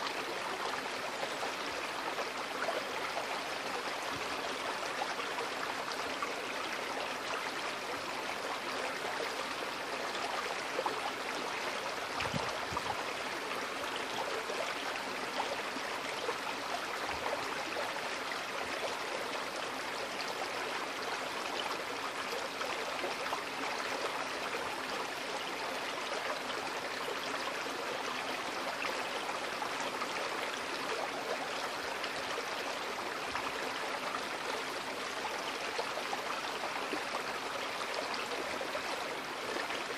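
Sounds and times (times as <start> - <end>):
creek water flowing over stones: 0.0 - 39.9.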